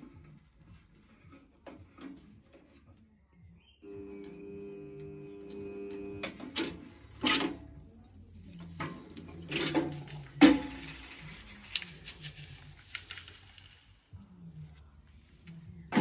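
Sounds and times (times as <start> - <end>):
metal sieve tray clanking: 8.8 - 11.5.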